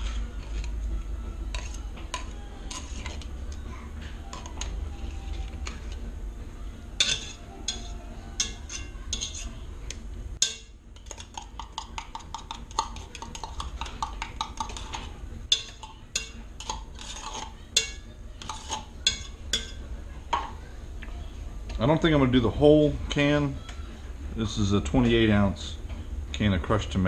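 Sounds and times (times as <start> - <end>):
metal utensil scraping tin can: 1.5 - 3.6, 7.0 - 9.6, 14.6 - 18.9.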